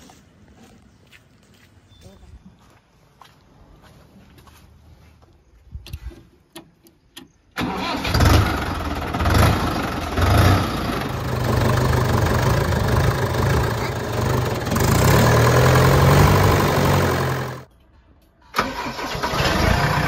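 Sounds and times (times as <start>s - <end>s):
tractor diesel engine starting: 7.5s - 17.7s, 18.4s - 20.0s.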